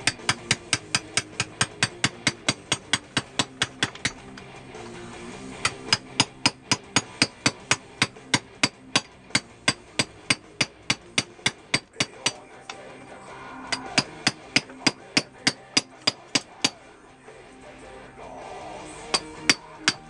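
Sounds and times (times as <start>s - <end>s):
hammer striking chisel into stone: 0.0s - 4.5s, 5.6s - 12.8s, 13.7s - 16.8s, 19.1s - 20.0s.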